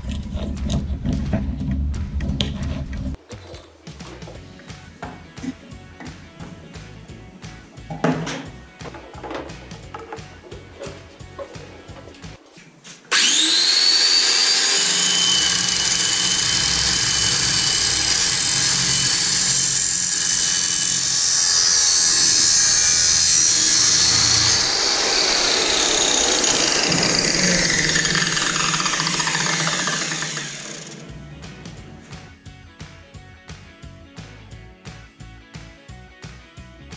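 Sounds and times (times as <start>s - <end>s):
grinder cutting metal pipe: 13.1s - 32.1s
angle grinder whine: 13.1s - 32.2s.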